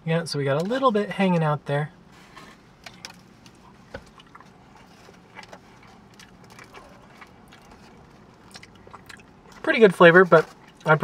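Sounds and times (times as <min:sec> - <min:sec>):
person chewing sandwich: 0:02.3 - 0:09.7, 0:10.3 - 0:11.0.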